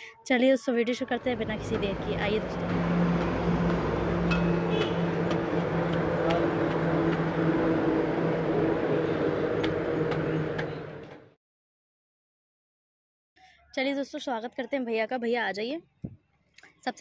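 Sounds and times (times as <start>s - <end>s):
engine humming steadily: 1.0s - 11.3s.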